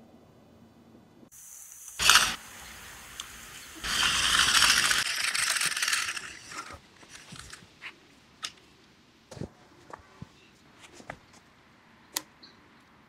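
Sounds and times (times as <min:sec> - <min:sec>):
line reel whirring: 0:02.0 - 0:02.4, 0:03.8 - 0:07.6.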